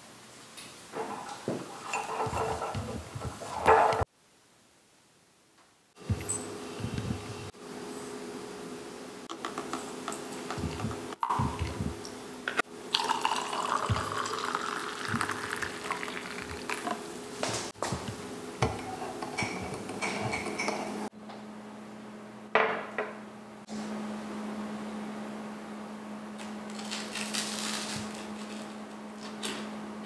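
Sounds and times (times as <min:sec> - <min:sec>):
cup and spoon clinks: 0:06.2 - 0:06.5
liquid pouring into mug: 0:12.9 - 0:17.0.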